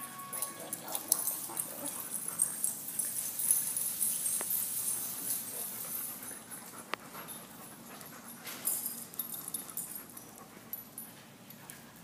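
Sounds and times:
dog claws clicking on floor: 0.4s - 12.0s
dog panting: 5.0s - 12.0s.

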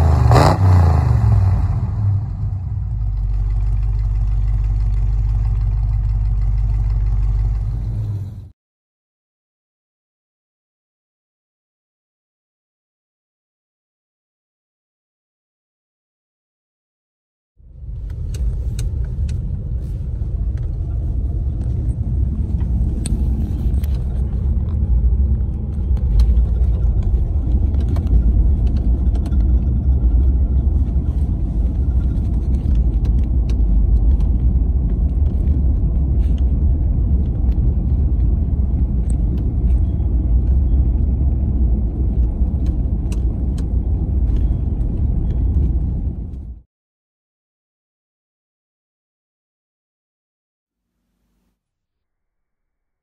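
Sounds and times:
engine and tyres rumbling: 0.0s - 8.6s, 17.6s - 46.6s.

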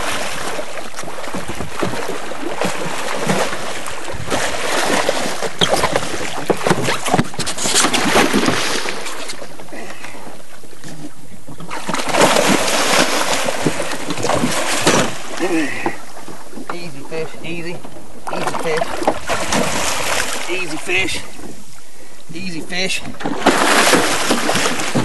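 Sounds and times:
fish thrashing water splashing: 0.0s - 9.6s, 11.6s - 15.6s, 18.3s - 20.8s, 23.2s - 25.0s.

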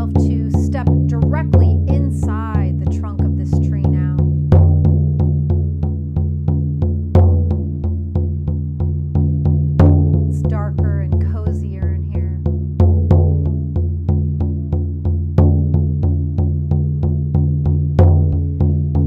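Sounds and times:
frame drum beating: 0.0s - 19.0s.

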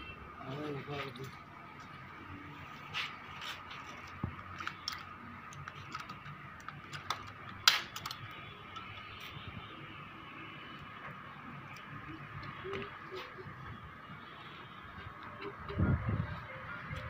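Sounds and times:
pliers clicking and snipping wire: 4.6s - 8.9s.

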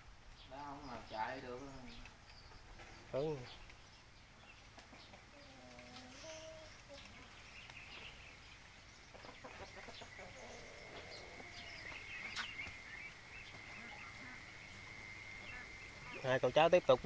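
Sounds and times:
chickens clucking: 4.7s - 16.8s
small high calls: 5.1s - 8.4s, 9.5s - 17.0s
high-pitched whine: 10.6s - 17.0s.

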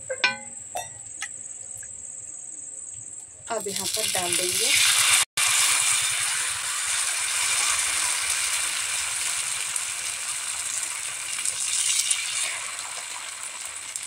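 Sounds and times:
batter sizzling on hot pan: 3.5s - 14.0s.

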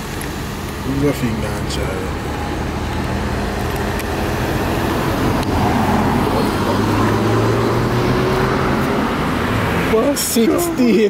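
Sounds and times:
car driving past: 1.5s - 10.2s.

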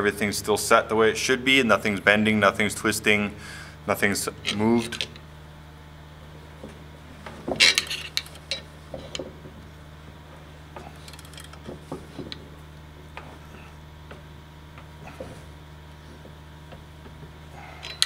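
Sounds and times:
ratchet wrench clicking: 11.1s - 11.6s.

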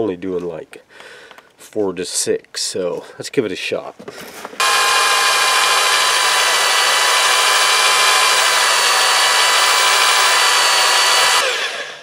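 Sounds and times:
drill bit grinding hard shell: 4.6s - 12.0s
electric drill motor whine: 4.6s - 12.0s.

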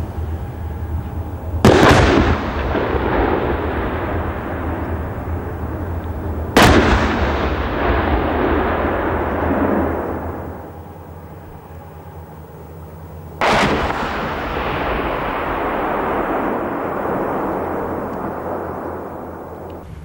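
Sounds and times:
artillery blasts with rumble: 1.6s - 10.7s, 13.4s - 19.8s.

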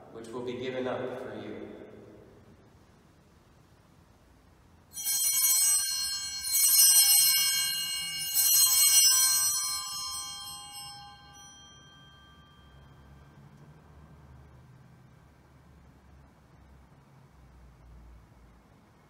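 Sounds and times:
altar bells ringing: 4.9s - 13.6s.

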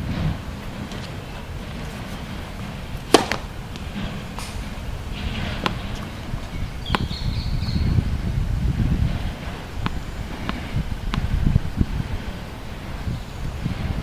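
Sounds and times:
wind rumble on microphone: 0.0s - 14.0s
racket striking tennis ball: 0.8s - 12.8s
faint knocks: 0.9s - 7.1s.

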